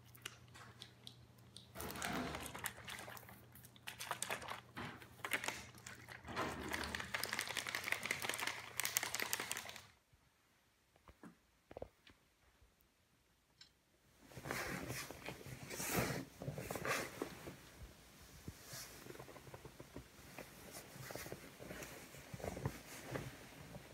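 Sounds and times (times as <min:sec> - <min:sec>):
plastic packaging crinkling: 0:01.8 - 0:10.0.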